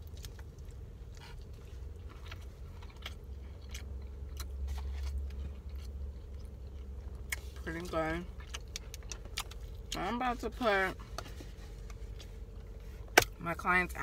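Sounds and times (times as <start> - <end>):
person chewing and crunching: 0.0 - 10.4
low hum inside a car: 0.0 - 14.0.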